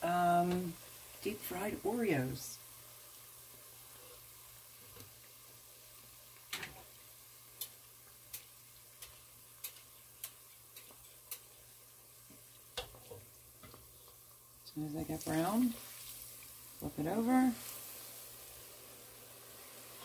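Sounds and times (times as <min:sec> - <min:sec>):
deep-frying sizzle: 0:00.0 - 0:20.0
oil popping and crackling: 0:06.3 - 0:20.0.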